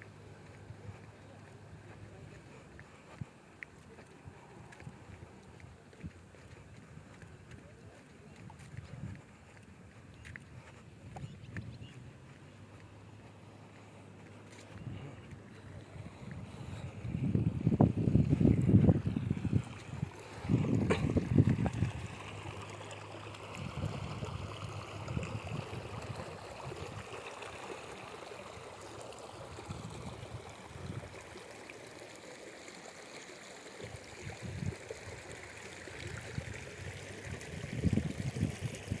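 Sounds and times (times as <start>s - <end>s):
water spilling into field: 0.0s - 39.0s
wind buffeting microphone: 8.2s - 12.8s, 14.2s - 22.8s, 23.4s - 27.2s, 29.4s - 31.2s, 33.8s - 35.3s, 36.0s - 39.0s.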